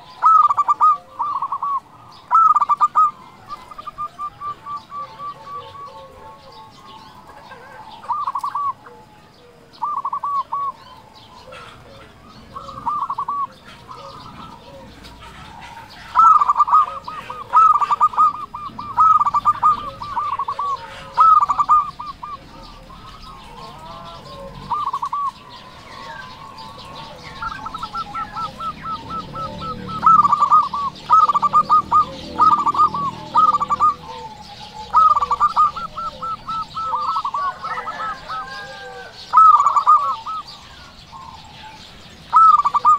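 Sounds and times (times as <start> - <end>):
dove cooing: 0.0 - 42.9
small birds chirping: 0.0 - 42.9.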